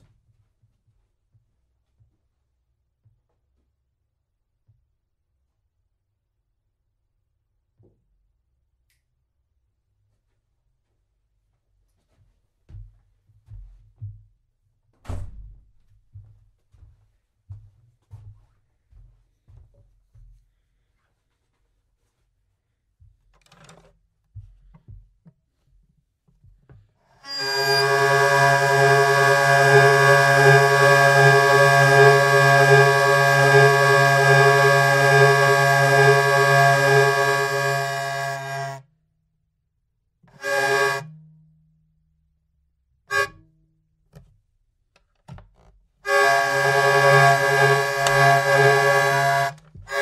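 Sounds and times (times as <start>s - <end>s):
hurdy-gurdy drone: 27.2s - 38.8s, 40.4s - 41.0s, 46.1s - 50.0s
low hum: 27.3s - 38.8s, 46.1s - 50.0s.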